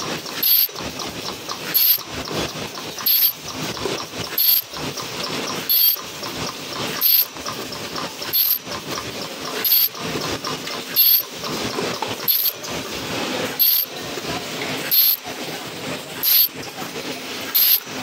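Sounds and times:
machine mechanical clatter: 0.0s - 18.0s.

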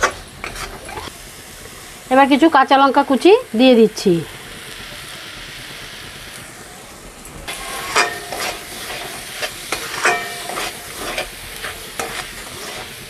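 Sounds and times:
spatula scraping frying pan: 0.0s - 1.1s, 7.5s - 13.0s
low sizzle: 0.0s - 13.0s.

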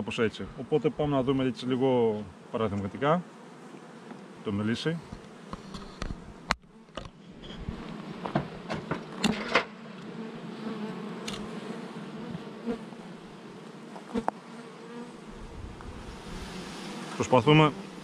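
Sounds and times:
honeybees buzzing: 0.0s - 18.0s
wooden hive frames knocking: 8.1s - 9.7s.

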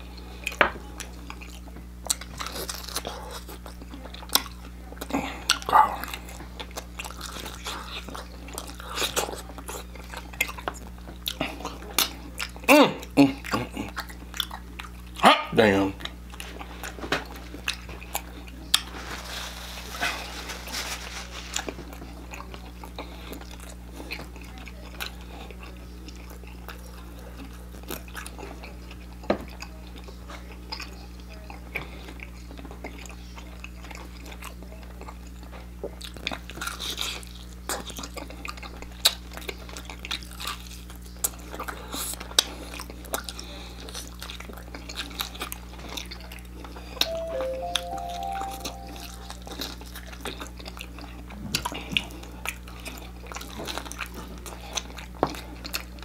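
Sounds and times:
person chewing crispy chicken: 0.0s - 15.2s, 16.0s - 19.2s, 21.5s - 47.0s, 49.6s - 56.0s
short pitched tones: 47.0s - 49.5s.

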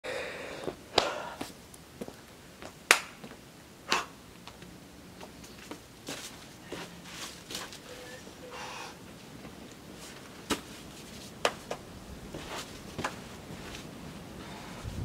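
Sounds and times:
footsteps on dry leaves and rock: 5.2s - 7.9s.

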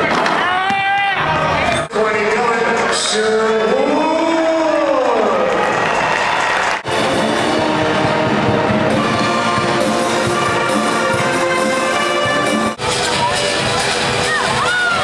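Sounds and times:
brass band music: 6.8s - 15.0s.

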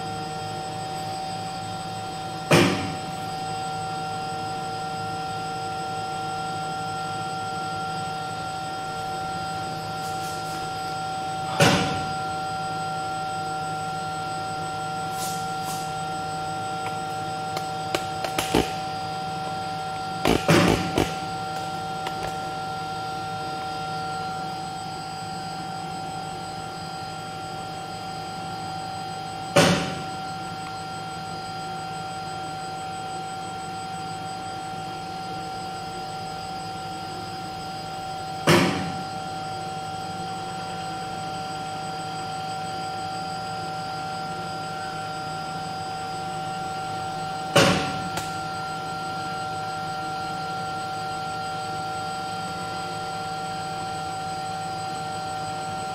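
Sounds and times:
machine humming with steady tones: 0.0s - 55.9s.

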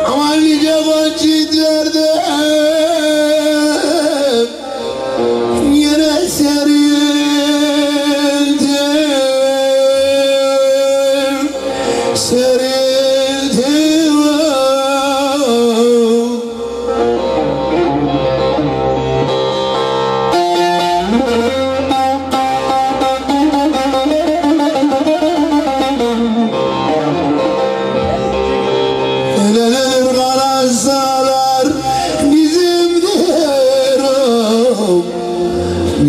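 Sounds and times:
man singing folk song: 0.0s - 17.4s, 29.3s - 36.0s
amplified saz playing: 0.0s - 36.0s.

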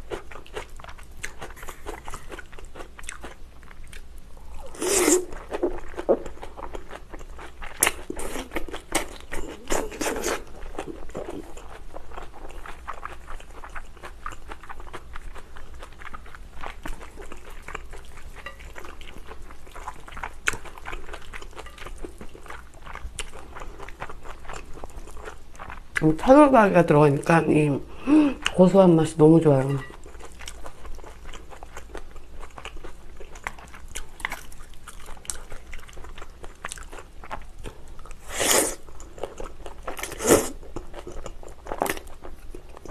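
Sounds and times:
person slurping noodles: 4.6s - 5.4s, 38.2s - 38.8s.

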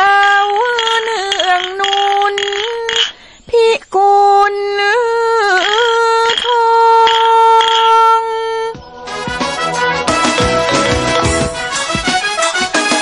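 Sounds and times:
woman singing slow song: 0.0s - 8.9s.

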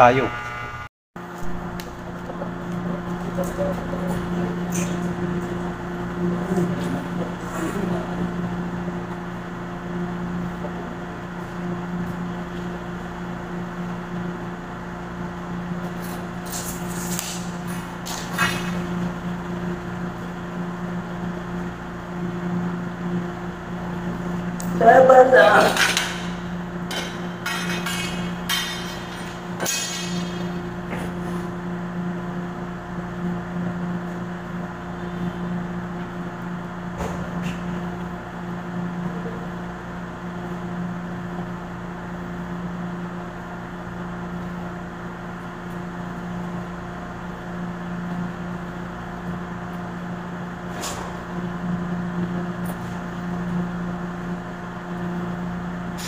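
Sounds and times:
steady low mechanical hum: 0.0s - 56.0s.

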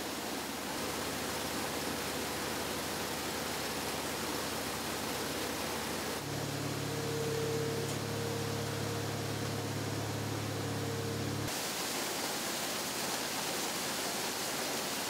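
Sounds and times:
water gushing from a pipe: 0.0s - 15.0s
engine humming: 0.5s - 11.5s.

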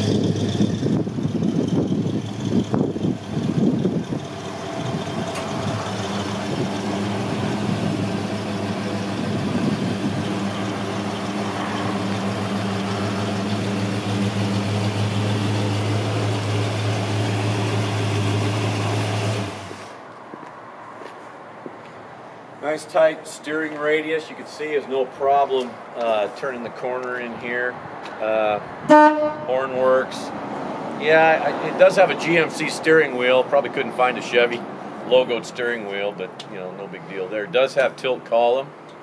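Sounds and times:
engine idling: 0.0s - 19.9s.

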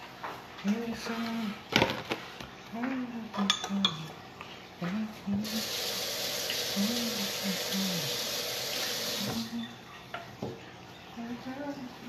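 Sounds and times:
tap water running: 5.4s - 10.6s.

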